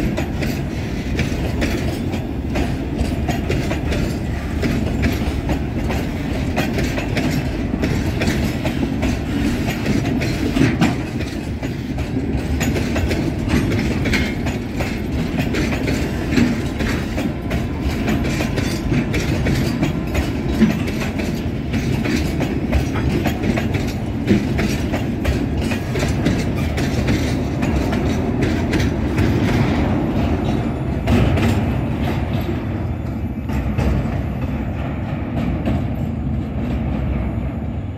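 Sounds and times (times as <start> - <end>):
wheels clicking over rail joints: 0.0 - 36.9
freight train rail rumble: 0.0 - 37.9.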